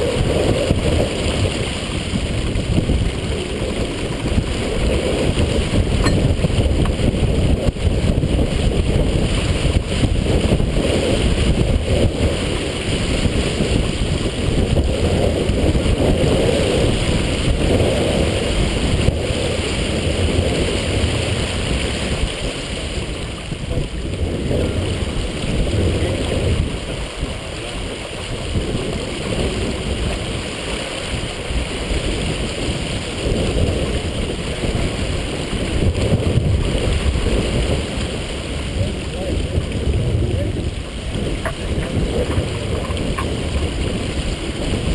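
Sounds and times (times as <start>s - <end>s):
water rushing along hull: 0.0s - 44.9s
wind buffeting microphone: 0.0s - 44.9s.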